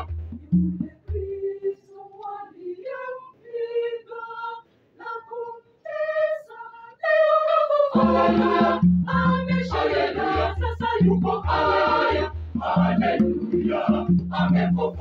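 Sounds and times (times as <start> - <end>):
conga drum: 0.0 - 1.4, 7.9 - 15.0
woman singing unaccompanied: 0.0 - 11.8
choir singing: 0.0 - 15.0.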